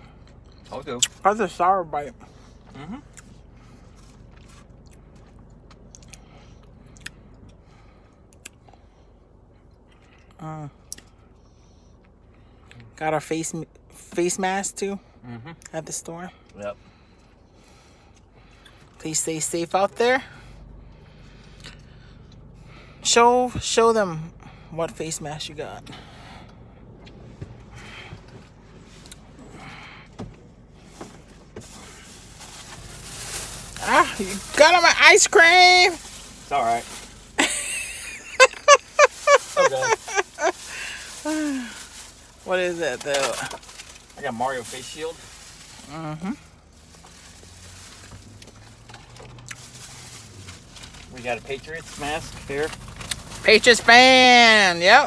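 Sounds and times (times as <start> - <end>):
person chewing: 48.4 - 49.8.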